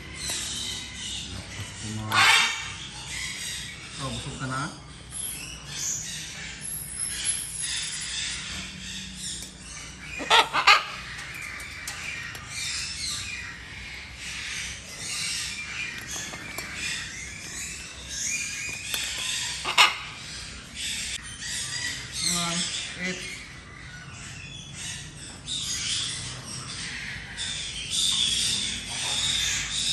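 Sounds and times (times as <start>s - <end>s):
parrots chattering: 0.0s - 29.9s
harsh macaw squawks: 2.1s - 2.9s, 10.2s - 11.1s, 19.6s - 20.2s.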